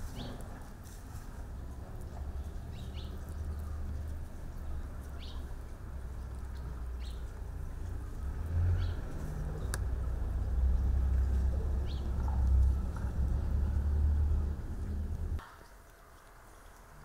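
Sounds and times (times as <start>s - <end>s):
steady low rumble: 1.1s - 15.4s
bird chirping: 1.6s - 7.7s, 8.7s - 15.8s.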